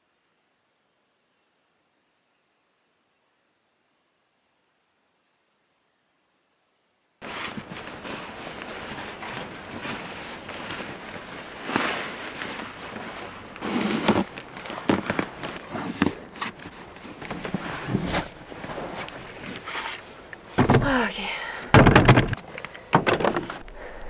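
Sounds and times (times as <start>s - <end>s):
bags rustling: 7.2s - 24.0s
knocks and thumps: 20.5s - 21.1s, 21.7s - 23.6s.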